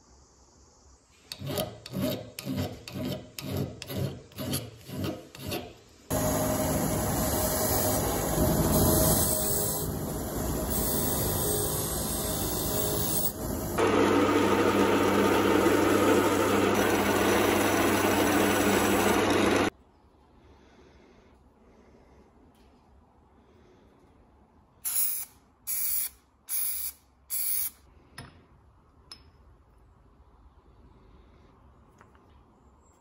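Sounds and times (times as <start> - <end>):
bench grinder grinding: 6.1 - 19.7
drill press spinning: 6.1 - 19.7
low motor hum: 6.1 - 19.7.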